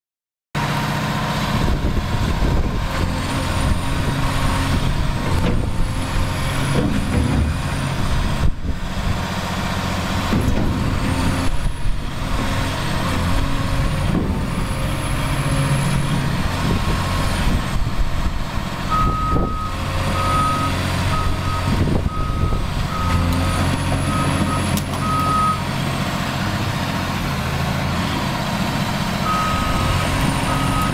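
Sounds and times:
excavator diesel engine running: 0.6s - 30.9s
reversing alarm beeping: 18.9s - 25.6s, 29.2s - 30.9s.

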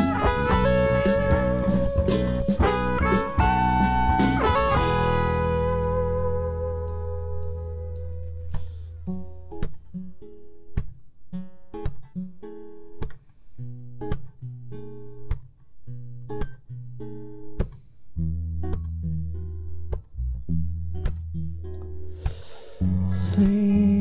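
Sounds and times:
electric bass notes: 0.0s - 9.7s, 18.2s - 24.0s
acoustic guitar: 0.0s - 24.0s.

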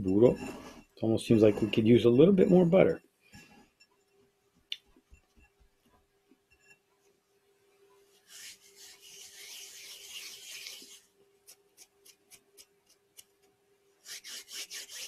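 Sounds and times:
hands rubbing cookie crumbs: 8.2s - 15.0s.

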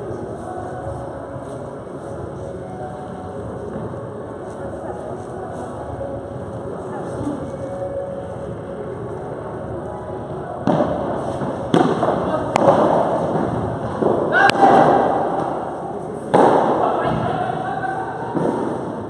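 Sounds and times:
ball hitting rackets and walls: 10.6s - 17.4s.

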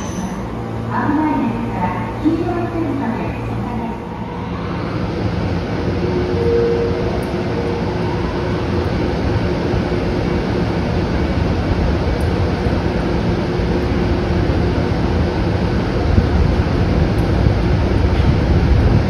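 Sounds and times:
electric locomotive hum: 0.0s - 19.0s
low tones from running equipment: 0.0s - 19.0s.

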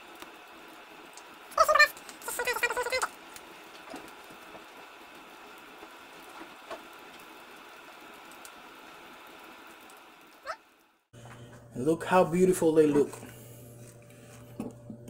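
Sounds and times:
food deep-frying in oil: 0.0s - 11.1s
high-pitched cry: 1.6s - 3.1s.

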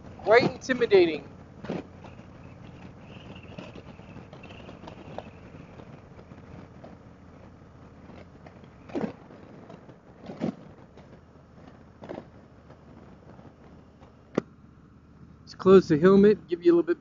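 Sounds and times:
wind noise on microphone: 0.0s - 11.0s
motorcycle engine riding: 0.0s - 17.0s.

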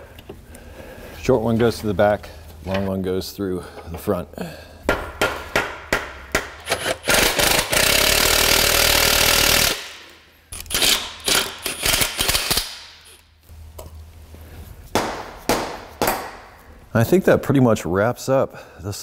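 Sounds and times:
impact wrench running: 6.1s - 13.2s.

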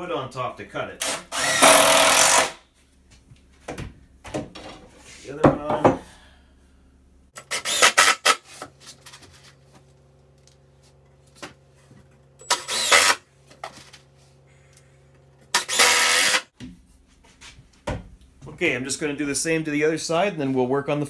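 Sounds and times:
cordless driver driving screws: 7.4s - 8.4s, 12.4s - 13.2s, 15.5s - 16.5s.

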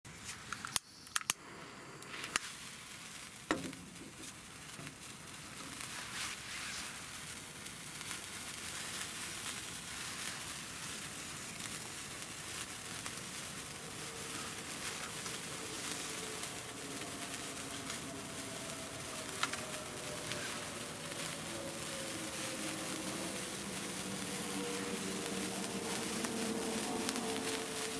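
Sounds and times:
sparklers fizzing and crackling: 0.2s - 27.9s
sharp clicks: 0.5s - 1.4s.

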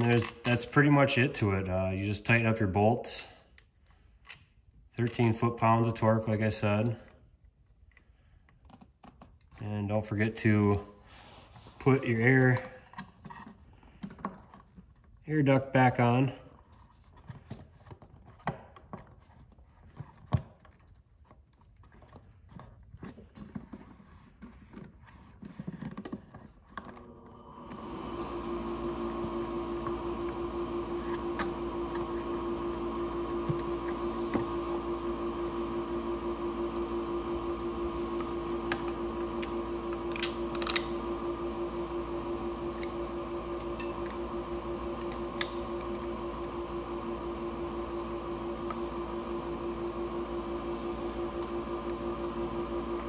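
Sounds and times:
steady machine hum: 26.9s - 53.0s.

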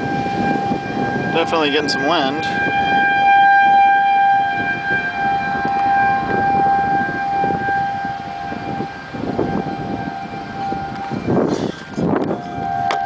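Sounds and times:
warning siren steady tone: 0.0s - 13.0s
wind buffeting microphone: 0.0s - 13.0s.

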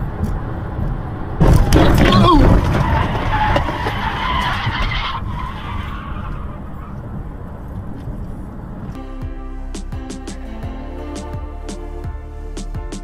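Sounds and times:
car tyres skidding: 0.0s - 8.9s
car road rumble: 0.0s - 10.8s.

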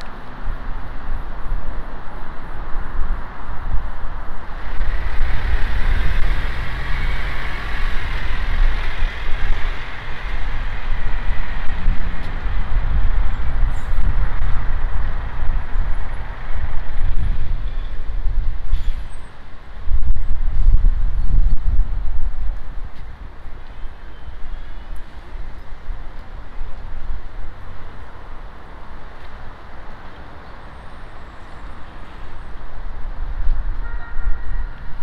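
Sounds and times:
steady low traffic rumble: 0.0s - 35.0s
large vehicle passing: 4.3s - 18.2s.

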